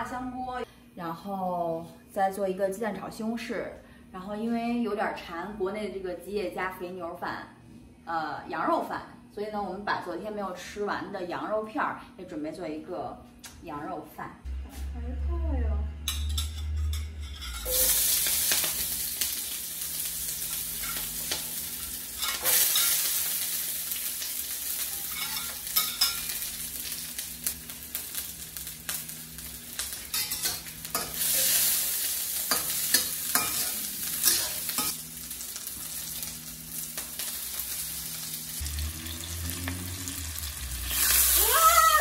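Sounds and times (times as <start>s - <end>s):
metal spatula scraping a pan: 16.1s - 18.8s
food sizzling in hot oil: 17.2s - 42.0s.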